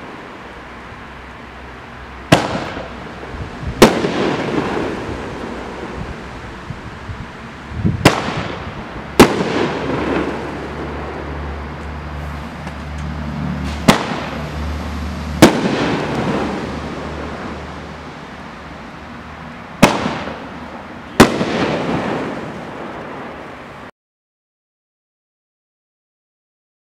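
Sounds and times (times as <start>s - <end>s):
fireworks bangs with echoing rumble: 2.3s - 6.2s, 7.9s - 11.4s, 13.6s - 17.9s, 19.7s - 23.6s.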